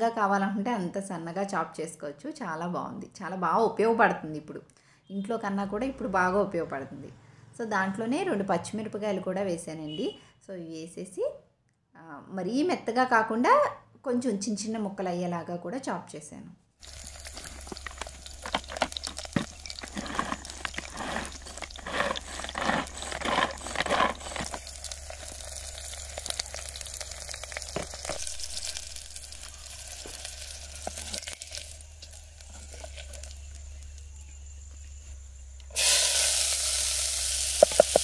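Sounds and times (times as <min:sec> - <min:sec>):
food sizzling in hot oil: 0:16.8 - 0:34.9, 0:35.7 - 0:38.0
wooden spatula stirring: 0:16.9 - 0:28.8, 0:32.4 - 0:33.3, 0:37.6 - 0:38.0
hand-pull chopper whirring: 0:18.5 - 0:25.0.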